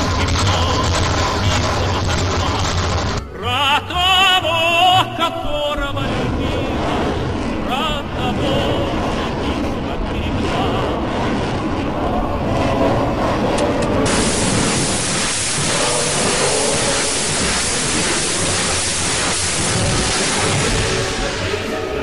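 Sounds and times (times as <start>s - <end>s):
rockets firing roar: 4.9s - 22.0s.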